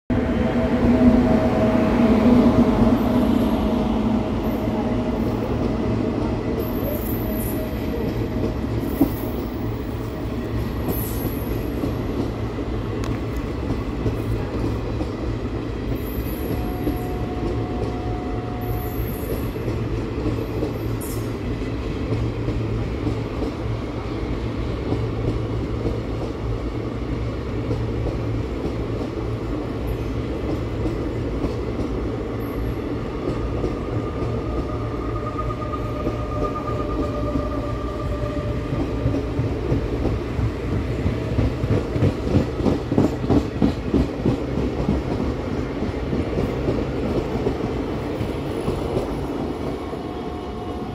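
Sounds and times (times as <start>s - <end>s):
electric locomotive hum: 0.1s - 50.9s
wheels rumbling on rail: 0.1s - 50.9s.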